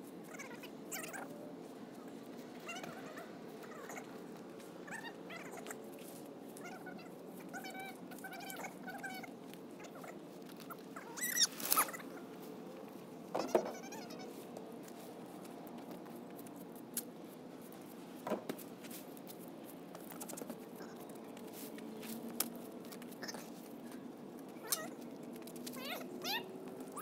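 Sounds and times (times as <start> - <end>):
short high animal calls: 11.0 - 12.1.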